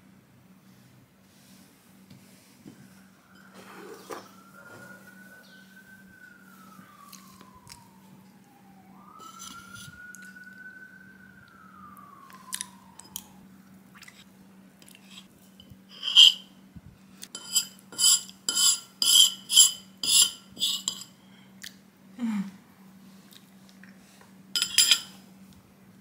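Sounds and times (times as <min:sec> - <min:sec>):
metal spoon scraping a saucer: 0:03.4 - 0:04.3, 0:14.8 - 0:15.3, 0:15.9 - 0:16.4, 0:17.3 - 0:21.1, 0:24.6 - 0:25.1
sharp spoon clink: 0:24.6 - 0:25.2.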